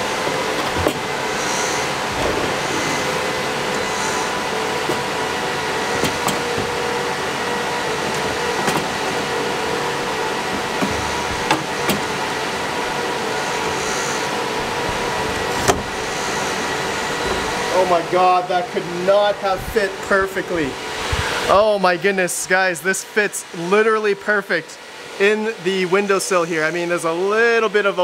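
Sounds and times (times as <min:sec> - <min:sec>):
fans whirring: 0:00.0 - 0:28.0
metal fan housing knocking: 0:00.3 - 0:13.7.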